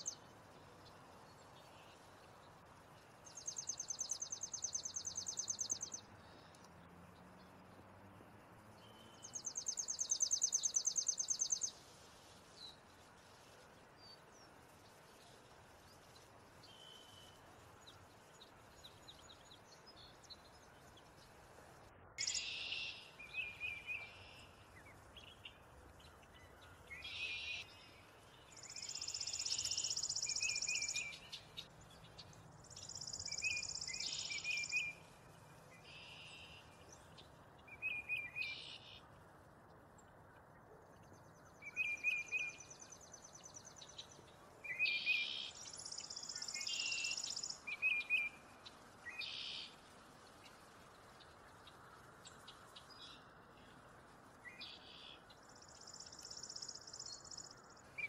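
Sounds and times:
bird chirps: 0:00.0 - 0:06.8, 0:08.8 - 0:21.4, 0:22.2 - 0:39.2, 0:40.0 - 0:58.0
sparrow dry trill: 0:03.2 - 0:06.6, 0:08.9 - 0:11.8.

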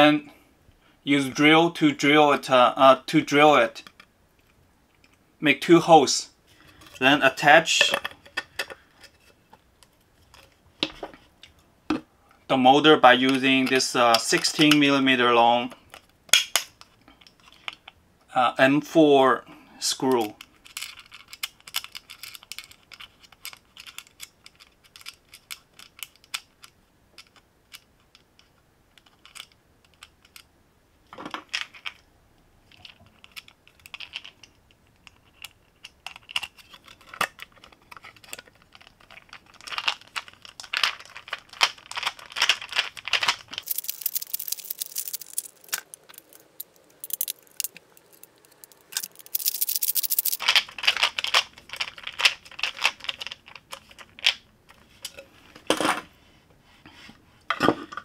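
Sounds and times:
screws clicking and scraping: 0:42.5 - 0:51.4
quick clicking: 0:43.6 - 0:50.5.

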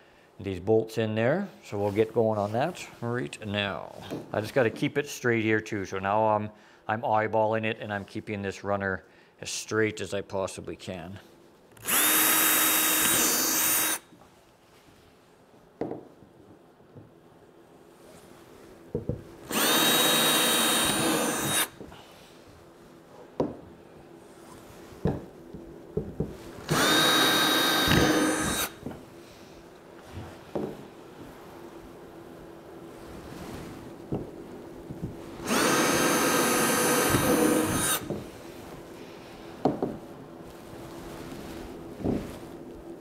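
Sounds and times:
cordless drill whine: 0:11.8 - 0:14.0, 0:19.5 - 0:21.8, 0:26.6 - 0:28.8, 0:35.4 - 0:38.1.

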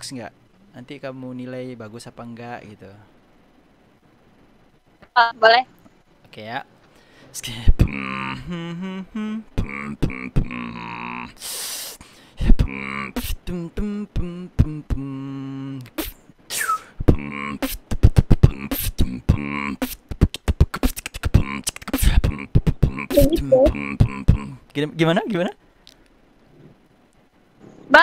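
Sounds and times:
man beatboxing into microphone: 0:07.5 - 0:24.6.

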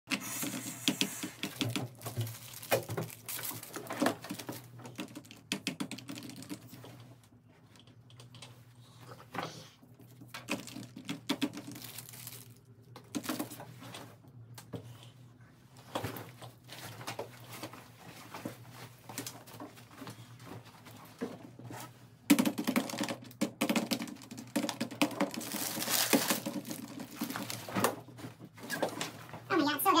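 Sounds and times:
snack bags crinkling: 0:01.4 - 0:05.4, 0:10.4 - 0:13.6, 0:22.7 - 0:28.0.

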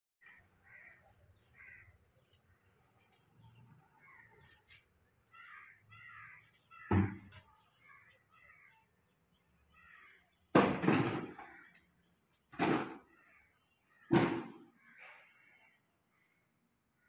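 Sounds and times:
loud bangs: 0:10.5 - 0:11.6, 0:14.1 - 0:14.7.

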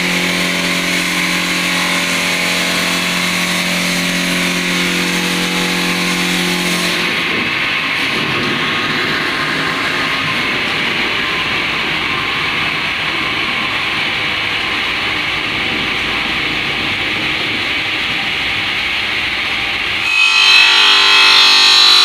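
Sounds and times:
saw blade grinding stone: 0:20.0 - 0:22.0.

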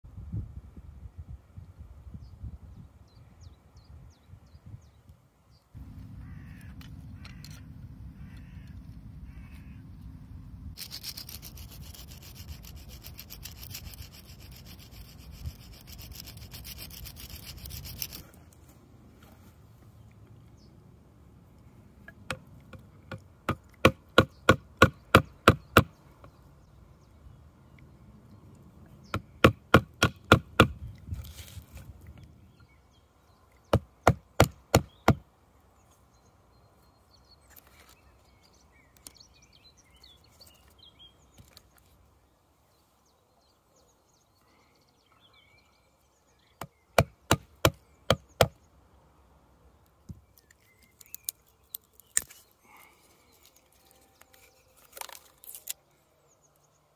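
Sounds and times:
hand axe chopping wood: 0:29.1 - 0:30.8.

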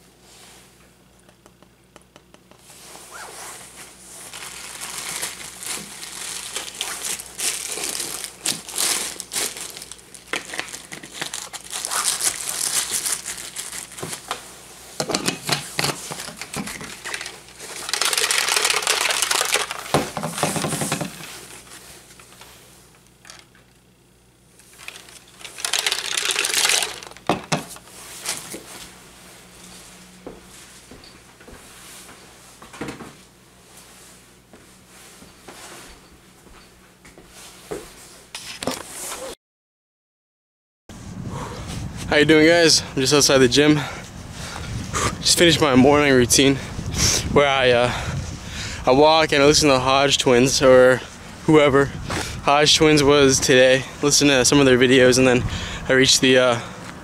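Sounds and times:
plastic rustling and crinkling: 0:02.6 - 0:22.6, 0:24.6 - 0:29.9.

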